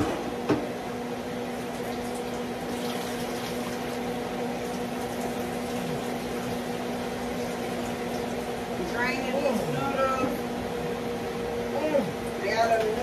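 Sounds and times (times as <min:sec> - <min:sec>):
meat deep-frying in oil: 0:01.0 - 0:09.5.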